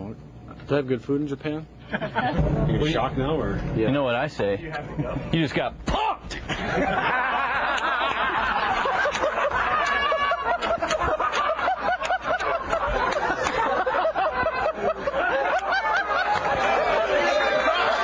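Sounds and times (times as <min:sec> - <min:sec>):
men laughing: 0:01.8 - 0:02.4, 0:06.3 - 0:18.0.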